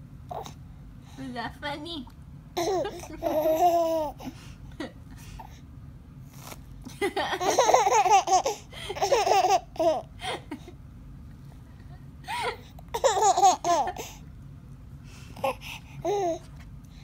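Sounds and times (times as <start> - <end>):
baby laughing: 2.6 - 4.2, 7.3 - 10.6, 12.3 - 14.2.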